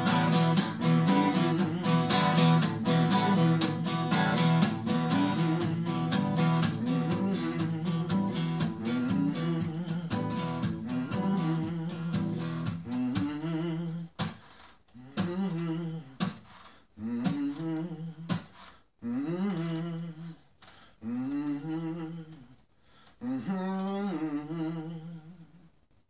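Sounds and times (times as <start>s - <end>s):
man humming: 0.0s - 14.3s, 15.0s - 16.4s, 17.0s - 20.4s, 21.0s - 22.6s, 23.2s - 25.8s
acoustic guitar: 0.0s - 20.2s.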